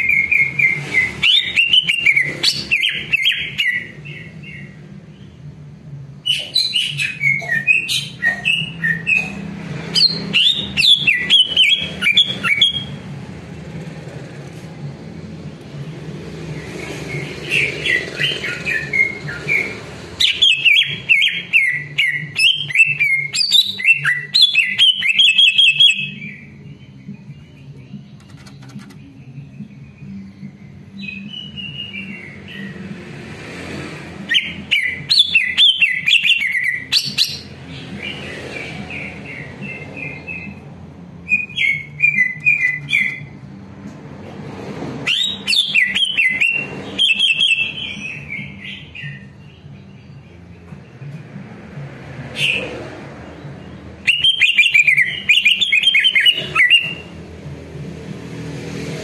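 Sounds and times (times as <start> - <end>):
bird singing chirps and whistles: 0.0 - 5.3, 6.2 - 13.0, 16.9 - 32.7, 34.3 - 38.2, 38.9 - 43.4, 45.0 - 50.5, 53.6 - 57.1.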